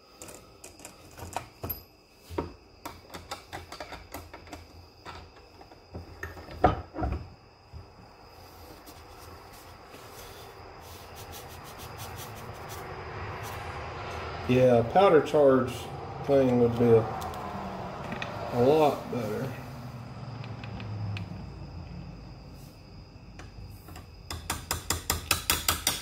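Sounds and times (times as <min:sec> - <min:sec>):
clicks and knocks of brass cases: 0:02.8 - 0:06.6.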